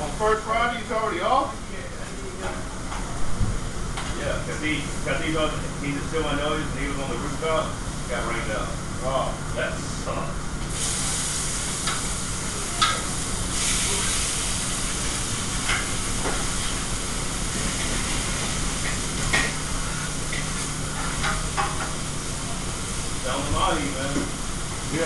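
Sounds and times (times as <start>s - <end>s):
exhaust hood humming: 0.0s - 25.0s
food sizzling: 10.7s - 25.0s.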